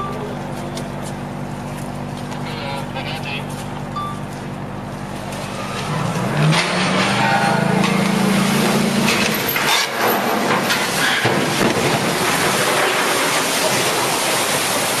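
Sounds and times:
rush and crash of water: 7.8 - 15.0.

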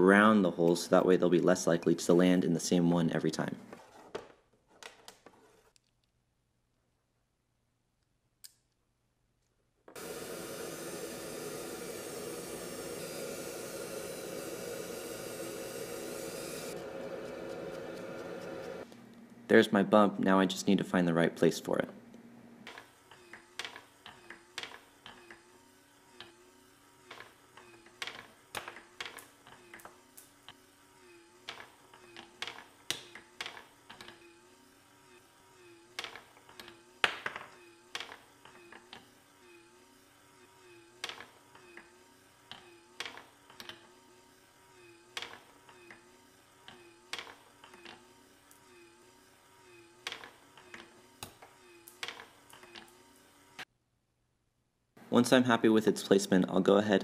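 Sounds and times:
faint motor hum: 9.9 - 53.7.

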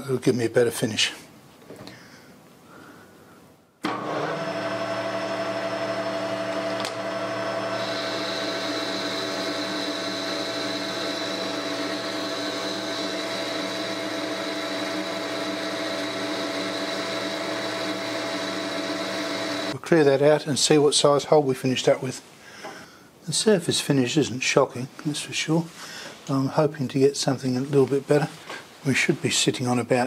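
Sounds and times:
metal lathe humming and whining: 3.9 - 19.8.

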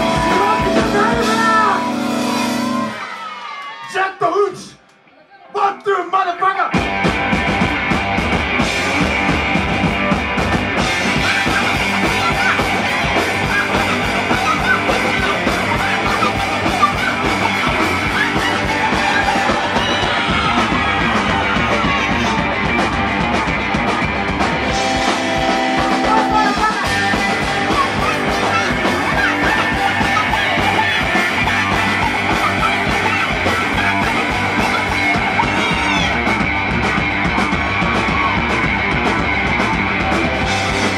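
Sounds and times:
singer shouting into microphone: 0.0 - 3.2, 3.8 - 6.8, 25.8 - 36.4
electric guitar: 0.0 - 3.8, 6.7 - 40.9
drums: 0.0 - 40.9.

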